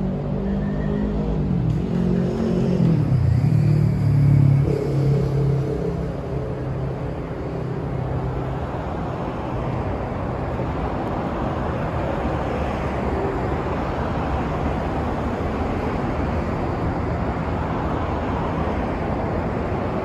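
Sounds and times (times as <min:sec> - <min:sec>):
vehicle passing by: 0:00.0 - 0:09.8
road traffic noise: 0:00.0 - 0:20.0.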